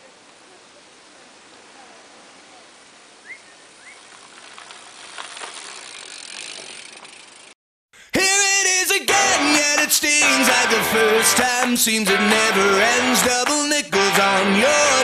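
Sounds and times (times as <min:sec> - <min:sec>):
outdoor hiss: 0:00.0 - 0:06.3
tyres crunching on gravel: 0:03.9 - 0:07.3
bike clicks: 0:03.9 - 0:07.6.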